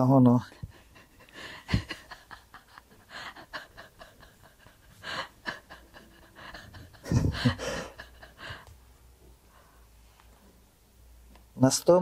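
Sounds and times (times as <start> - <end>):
man breathing and huffing: 0.5 - 10.0.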